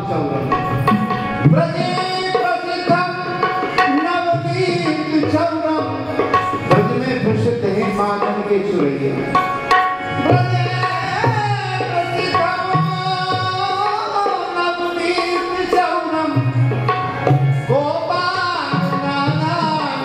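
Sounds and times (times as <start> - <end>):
tabla drumming: 0.0 - 20.0.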